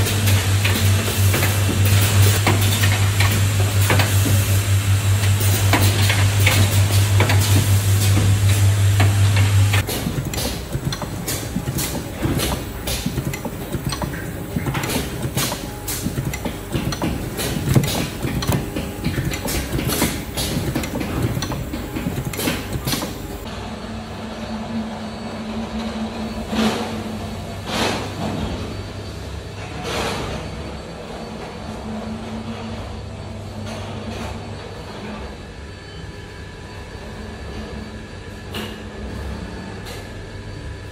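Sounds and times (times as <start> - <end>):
assembly machine humming: 0.0 - 27.6
testing rig clicks and knocks: 9.7 - 23.2.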